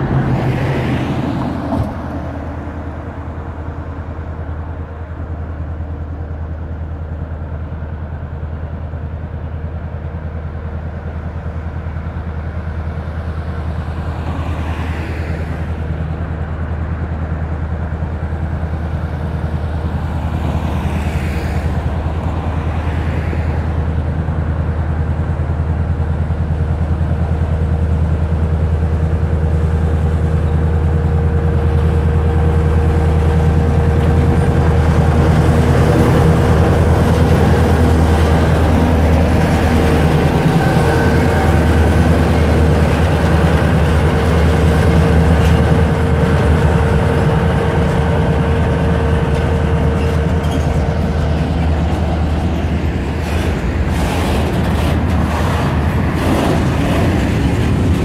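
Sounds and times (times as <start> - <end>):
diesel locomotive engine drone: 0.0 - 58.0
freight wagons rolling past: 29.4 - 58.0.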